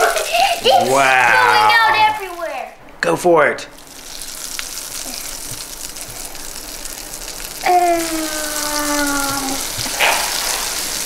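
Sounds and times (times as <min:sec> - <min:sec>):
fizzing crackling hiss: 0:00.0 - 0:02.7, 0:03.8 - 0:11.0.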